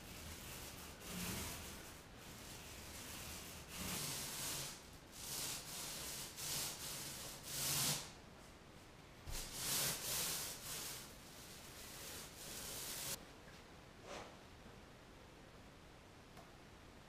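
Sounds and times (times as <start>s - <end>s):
paint roller rasping swishes: 0.0s - 8.2s, 9.3s - 13.2s.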